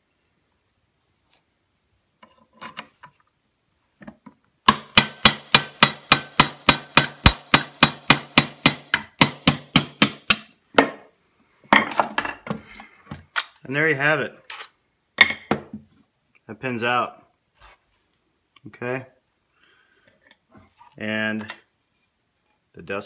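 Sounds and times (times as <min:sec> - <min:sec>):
hammer striking steel punch: 0:04.7 - 0:10.5.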